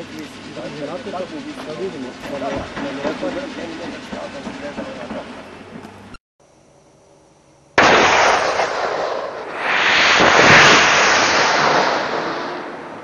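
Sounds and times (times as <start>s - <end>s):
detonator bang: 7.8s - 13.0s
propellant charge rushing blast: 7.8s - 13.0s.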